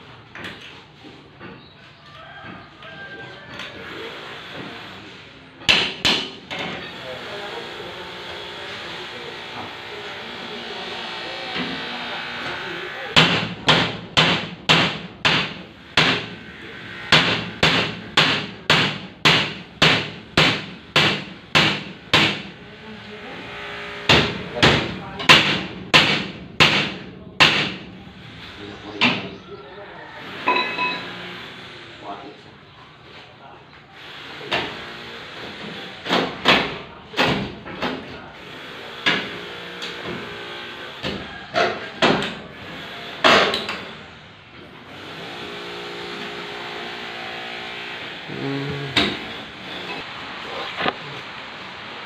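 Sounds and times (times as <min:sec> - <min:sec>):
hammer striking window frame: 0:05.6 - 0:06.4, 0:13.2 - 0:16.4, 0:17.1 - 0:22.5, 0:24.0 - 0:27.8, 0:43.2 - 0:43.8.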